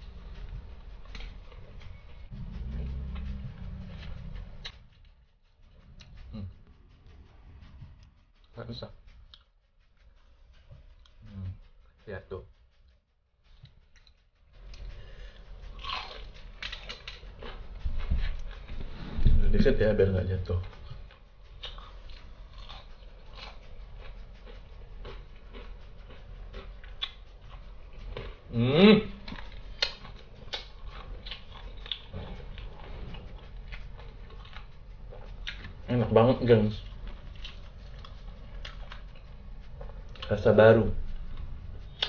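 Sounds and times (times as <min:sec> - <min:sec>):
crunchy chicken being chewed: 0:00.0 - 0:05.1, 0:13.9 - 0:19.8, 0:20.4 - 0:42.0.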